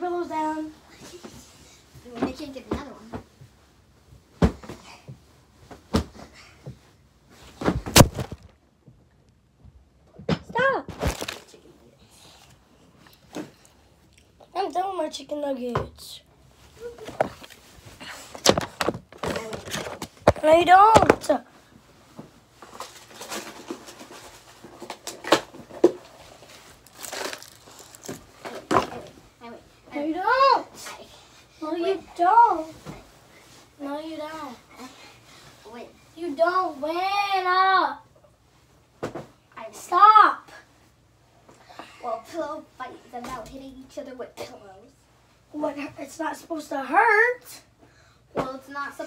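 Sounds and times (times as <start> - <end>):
clothing rustling: 16.4 - 37.1.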